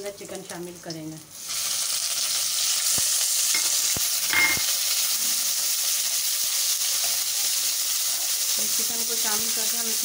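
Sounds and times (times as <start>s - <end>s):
chicken sizzling in hot oil: 0.0s - 10.0s.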